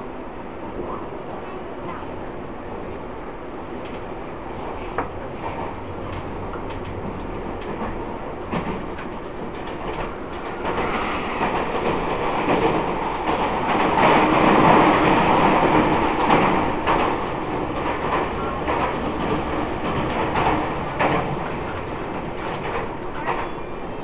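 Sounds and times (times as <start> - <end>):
train wheel and rail noise: 0.0 - 24.0
faint rail-joint clicks: 2.9 - 3.1, 3.8 - 14.2, 16.0 - 24.0.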